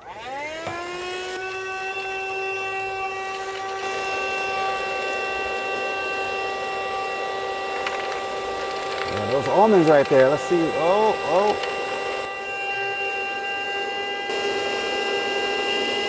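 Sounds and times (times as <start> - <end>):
handheld vacuum motor whine: 0.0 - 16.0
debris clicking in vacuum hose: 7.6 - 11.8.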